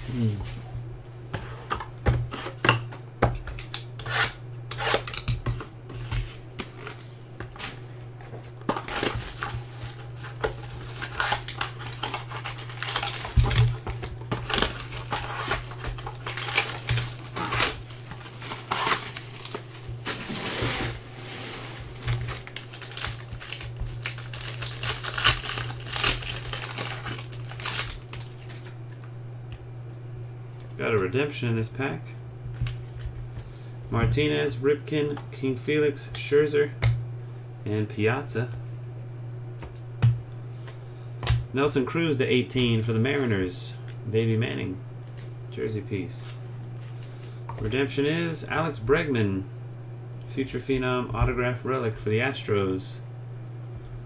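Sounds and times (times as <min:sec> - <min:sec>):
packaging crinkling: 0:08.7 - 0:28.8
foil wrapper tearing: 0:08.8 - 0:20.9, 0:21.6 - 0:28.7.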